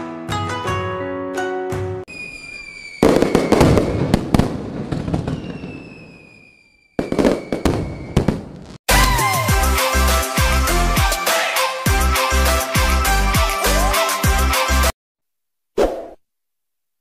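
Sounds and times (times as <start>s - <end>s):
fireworks burst with crackling: 2.1s - 8.8s
fireworks whistle: 2.1s - 9.6s.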